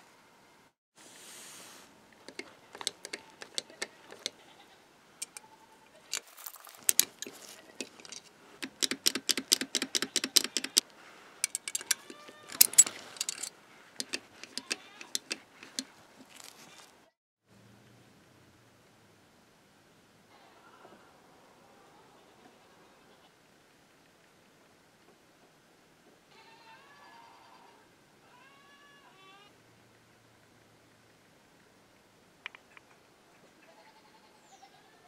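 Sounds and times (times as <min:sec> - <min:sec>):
metal latch clicking and rattling: 0:02.2 - 0:04.4, 0:05.2 - 0:05.5, 0:06.1 - 0:10.8, 0:11.4 - 0:16.6.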